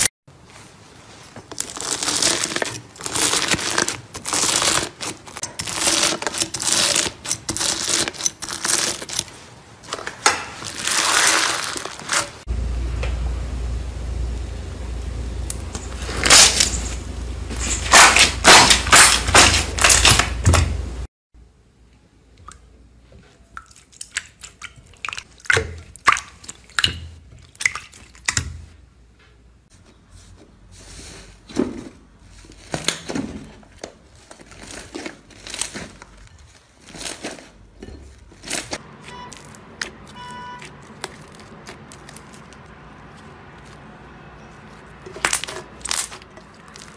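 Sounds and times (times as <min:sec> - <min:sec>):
slime crackling on wire rack: 0:01.0 - 0:12.5, 0:17.6 - 0:20.7, 0:31.8 - 0:46.9
slime squishing in glass bowl: 0:01.6 - 0:12.3, 0:23.4 - 0:28.8, 0:34.0 - 0:46.9.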